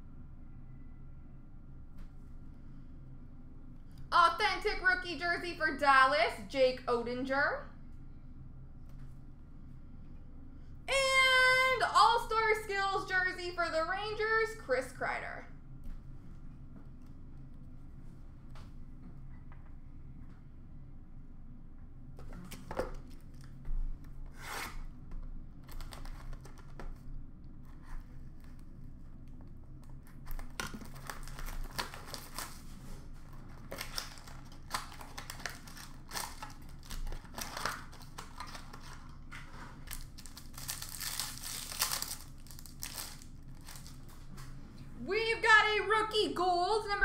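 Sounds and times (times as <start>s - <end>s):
foil wrappers crinkling: 30.1s - 44.3s
card packs tearing open: 30.2s - 32.8s, 33.5s - 44.2s.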